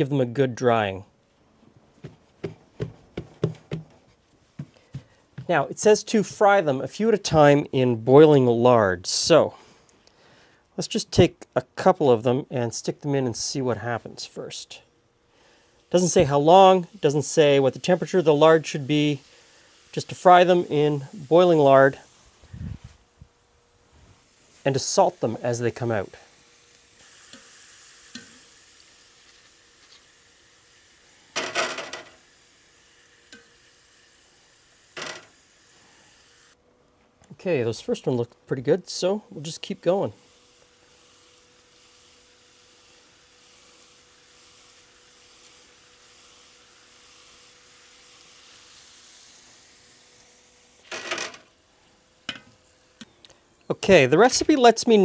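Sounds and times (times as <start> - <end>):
potato slices sizzling in lard: 13.8 - 22.9, 23.6 - 36.6, 37.6 - 55.0
metal clatter on wire rack: 31.4 - 32.2, 35.0 - 35.3.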